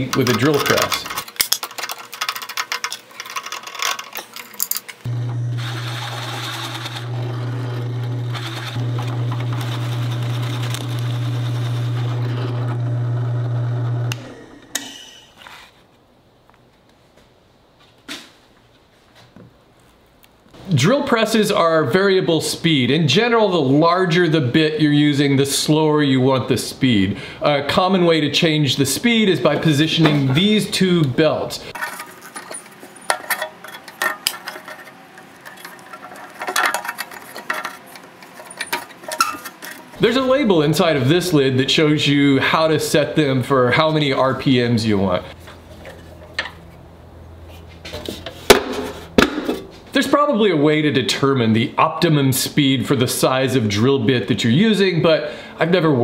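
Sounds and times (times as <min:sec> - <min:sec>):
metallic clicks and clinks: 0:00.0 - 0:05.1
drill bit boring into wood: 0:05.1 - 0:14.2
drill press motor hum: 0:05.1 - 0:15.1.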